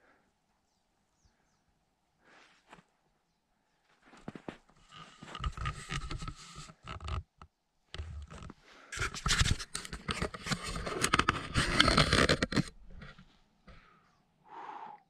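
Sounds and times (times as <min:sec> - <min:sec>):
footsteps crunching in snow: 0:03.8 - 0:05.3.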